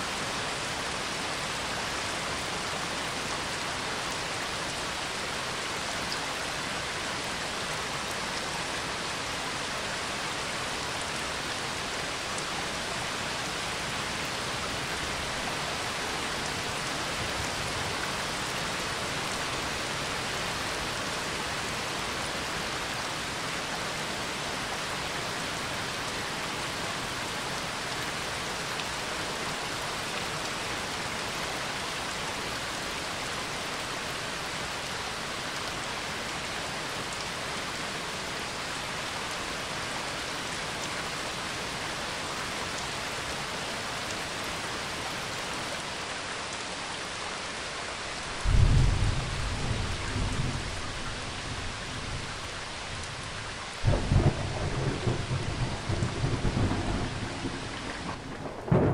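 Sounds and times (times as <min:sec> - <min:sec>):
steady rain falling: 0:00.0 - 0:58.9
thunder clap rumbling: 0:48.5 - 0:51.6, 0:53.8 - 0:58.9.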